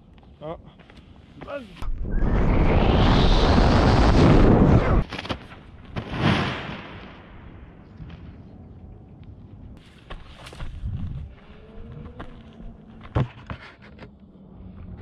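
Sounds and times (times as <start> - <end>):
wind rushing over microphone: 1.8 - 5.1, 10.5 - 12.9.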